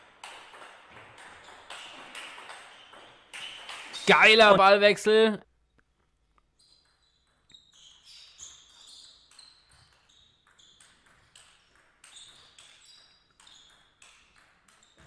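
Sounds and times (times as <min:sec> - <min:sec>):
table tennis ball hits: 0:00.1 - 0:04.0.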